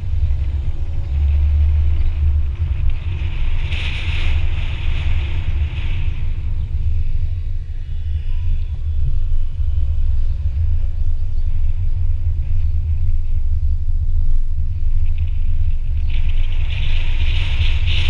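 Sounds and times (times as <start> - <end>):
road noise: 0.0 - 18.0
wind buffeting: 0.0 - 18.0.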